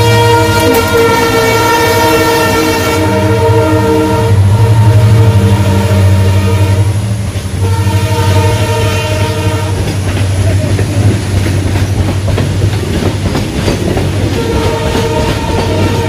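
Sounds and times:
train horn: 0.0 - 10.0, 14.2 - 16.0
train wheels clattering over rails: 7.2 - 16.0.

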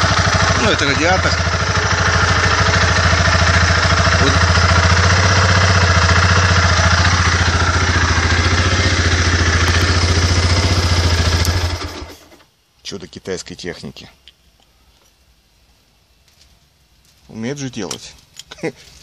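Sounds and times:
motorcycle engine idling: 0.0 - 12.4.

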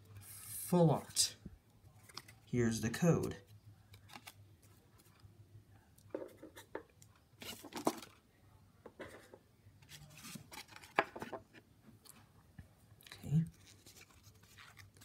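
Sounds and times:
cards and foil wrapper rustling: 2.0 - 2.5, 13.5 - 15.0.

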